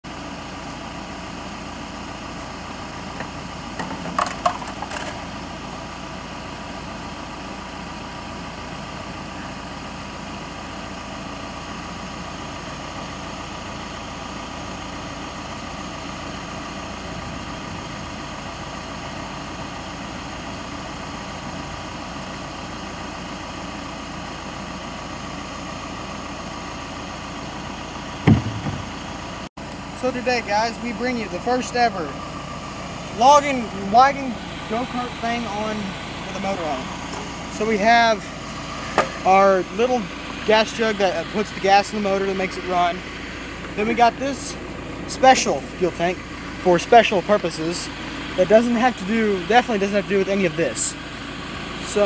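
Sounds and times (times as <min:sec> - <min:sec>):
small gasoline engine idling: 0:00.1 - 0:52.0
engine knocks: 0:03.0 - 0:05.4, 0:28.2 - 0:29.5, 0:36.6 - 0:42.6.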